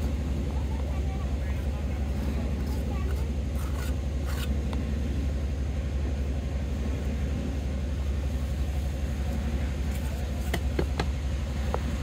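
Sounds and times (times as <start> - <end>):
trowel scraping wet mortar: 2.0 - 4.6.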